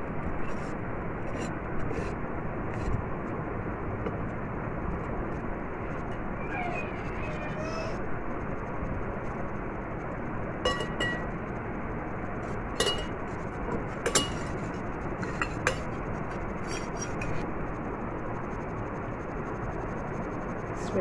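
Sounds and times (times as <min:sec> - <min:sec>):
glass bowl clinking: 0:10.7 - 0:11.3, 0:12.8 - 0:13.2, 0:14.0 - 0:14.6, 0:15.2 - 0:15.9.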